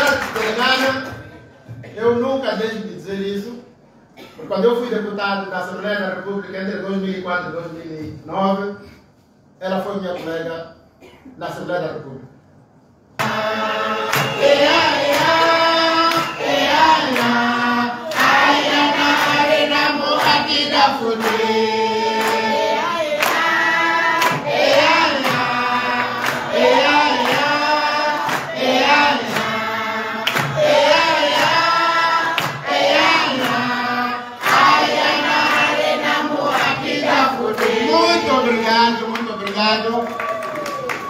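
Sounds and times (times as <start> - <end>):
hand clapping: 0.0 - 1.2, 13.2 - 17.5, 18.1 - 19.5, 20.2 - 20.4, 21.2 - 21.5, 22.2 - 22.5, 23.2 - 23.6, 24.2 - 27.6, 28.2 - 29.6, 30.2 - 31.6, 32.3 - 33.7, 34.4 - 37.9
crowd singing in chorus: 13.2 - 39.0.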